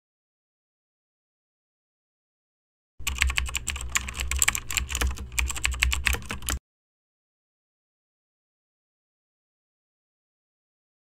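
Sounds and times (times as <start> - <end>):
keyboard typing clicks: 3.0 - 6.6.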